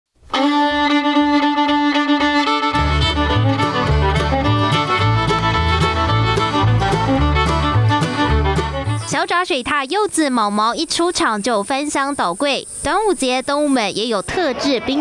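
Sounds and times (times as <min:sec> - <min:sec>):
background music with melody: 0:00.3 - 0:09.1
steady beat: 0:00.3 - 0:09.1
bass line: 0:00.4 - 0:09.1.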